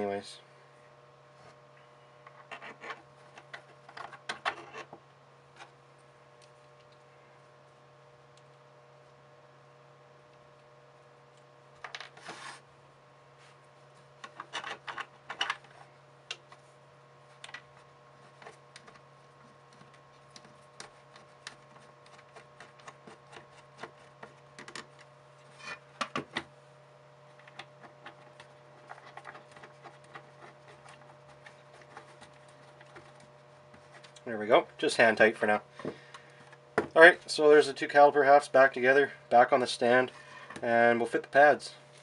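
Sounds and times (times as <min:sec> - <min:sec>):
steady low hum: 0:00.0 - 0:42.0
plastic parts clicking and scraping: 0:14.2 - 0:15.8, 0:27.4 - 0:34.2.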